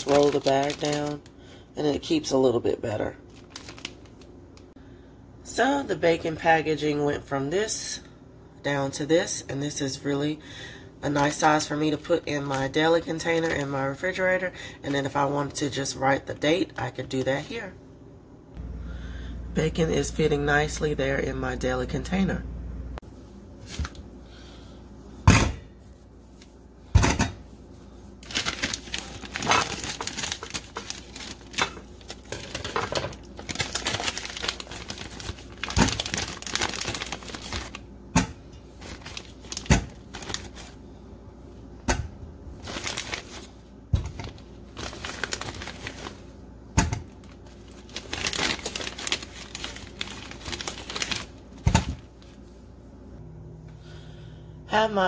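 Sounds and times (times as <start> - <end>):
plastic bag rustling: 0.0 - 1.3, 3.2 - 4.4, 27.7 - 37.8, 38.7 - 40.8, 42.5 - 46.4, 47.2 - 52.5.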